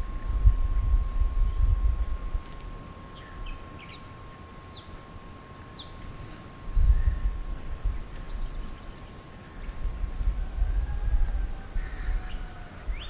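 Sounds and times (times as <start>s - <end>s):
wind rumble on microphone: 0.0s - 4.0s, 5.8s - 13.0s
small bird chirping: 6.9s - 10.1s.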